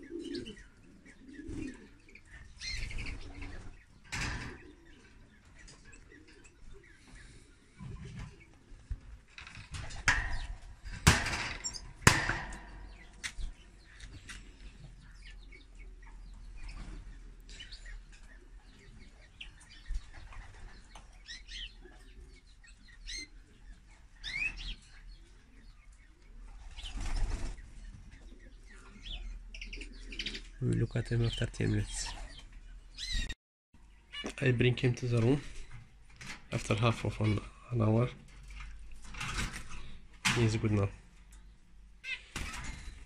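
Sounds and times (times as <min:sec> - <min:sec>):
canary chirping: 0:00.0 - 0:07.4, 0:11.6 - 0:34.3.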